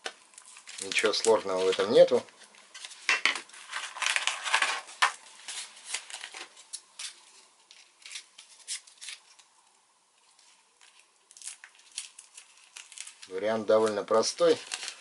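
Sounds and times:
sandpaper rustling and crinkling: 0:00.4 - 0:07.1, 0:10.3 - 0:15.0.

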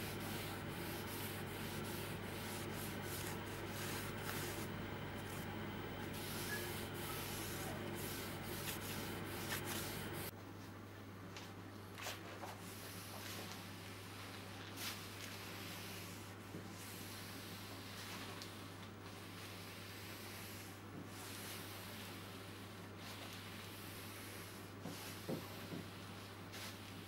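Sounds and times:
pad scrubbing on wood: 0:00.0 - 0:10.3.

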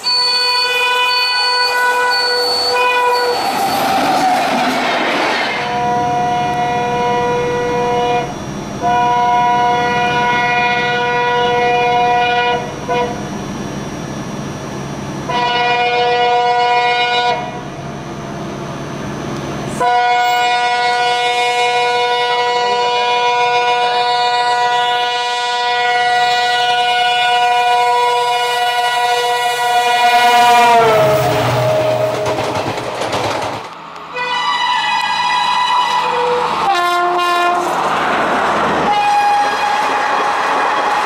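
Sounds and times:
locomotive horn blasts: 0:00.0 - 0:03.5, 0:05.6 - 0:13.3, 0:15.2 - 0:17.6, 0:19.7 - 0:32.4, 0:34.1 - 0:37.8, 0:38.8 - 0:40.0.

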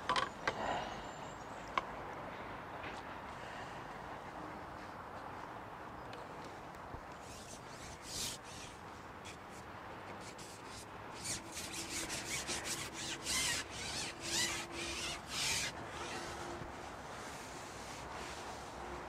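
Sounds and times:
fishing pole rasping rubs: 0:07.2 - 0:09.4, 0:10.2 - 0:16.6.

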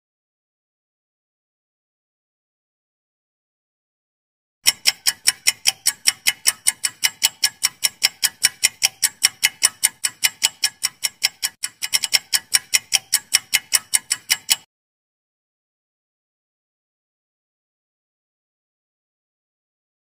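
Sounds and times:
clock ticks: 0:04.6 - 0:14.7.

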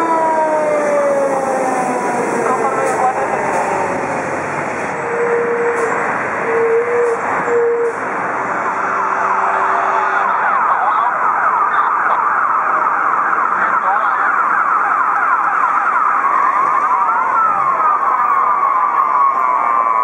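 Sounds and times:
fire truck sirens: 0:00.0 - 0:20.0
short horn blasts: 0:05.0 - 0:08.0, 0:08.6 - 0:10.4.

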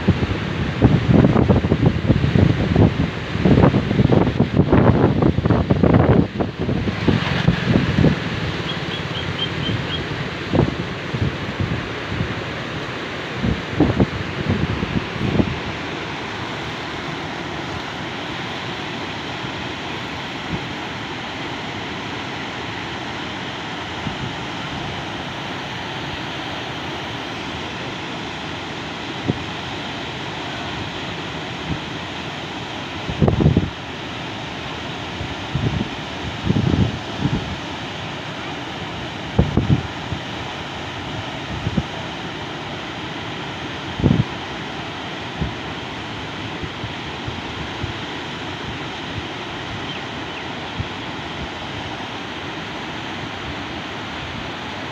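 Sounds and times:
wind thumps on microphone: 0:00.0 - 0:11.8
flood torrent rushing: 0:00.0 - 0:54.9.

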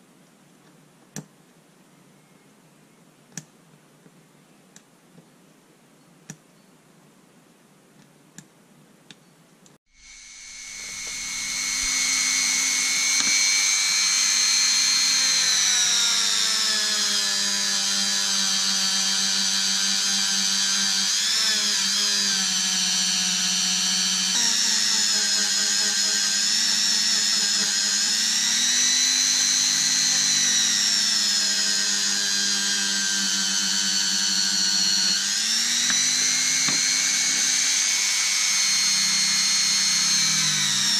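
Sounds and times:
rotary tool whining: 0:10.0 - 0:40.9.

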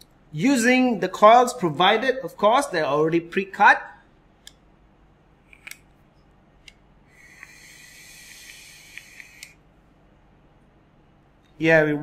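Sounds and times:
air hissing through vape airflow: 0:07.1 - 0:09.6
light clicks of handling device: 0:08.4 - 0:09.6.

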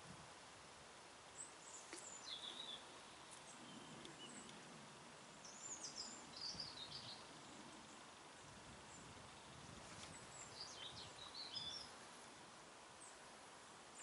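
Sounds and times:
quiet background hiss: 0:00.0 - 0:14.0
small bird chirps: 0:01.4 - 0:04.6, 0:10.2 - 0:12.0.

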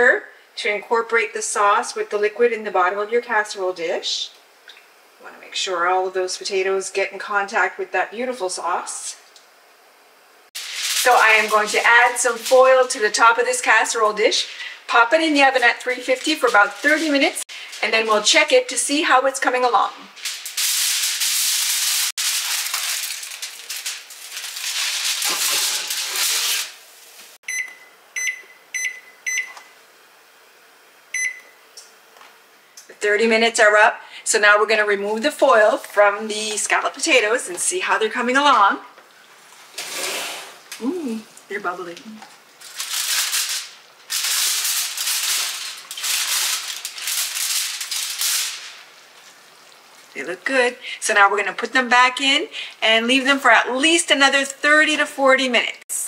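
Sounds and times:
aluminium foil crinkling: 0:10.6 - 0:14.3, 0:15.0 - 0:27.3, 0:40.6 - 0:50.2
microwave keypad beeps: 0:27.5 - 0:29.7, 0:31.2 - 0:31.6.

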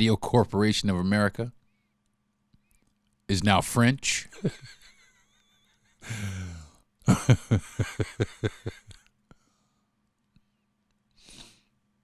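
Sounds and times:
man chuckling: 0:04.4 - 0:09.0
man sighing: 0:06.0 - 0:06.8.

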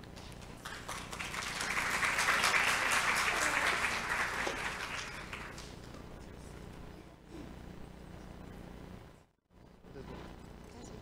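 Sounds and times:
audience applauding: 0:00.5 - 0:05.9.

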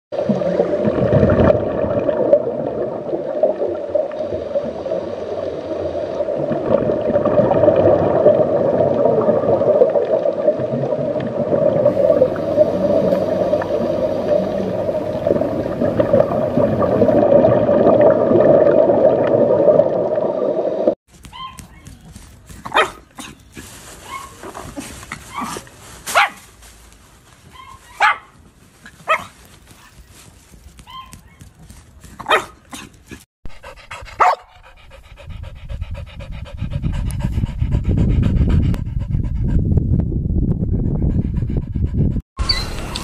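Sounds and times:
underwater gurgling and rushing water: 0:00.1 - 0:21.0.

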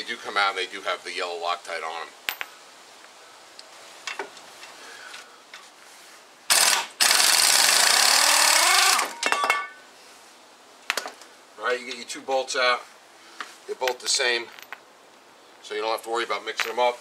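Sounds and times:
pneumatic impact wrench: 0:06.5 - 0:09.3.

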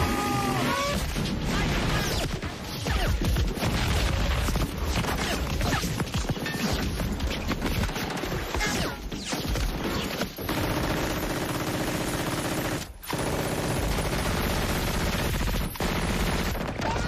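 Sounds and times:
machine-gun fire: 0:09.6 - 0:17.0.

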